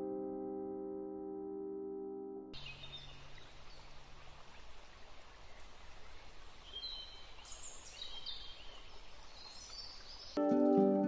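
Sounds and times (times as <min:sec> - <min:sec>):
quiet outdoor hiss: 0:02.6 - 0:11.0.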